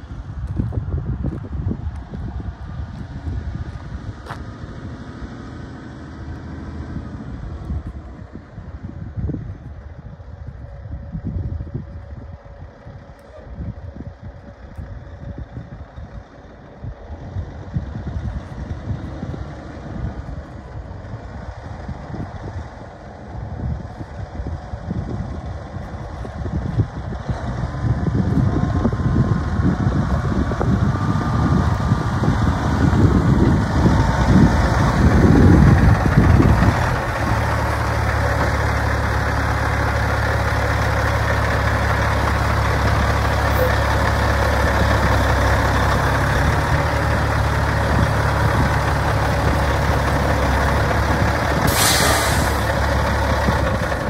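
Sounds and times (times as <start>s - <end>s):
truck diesel engine idling: 0.1s - 54.0s
air hiss: 51.6s - 52.7s.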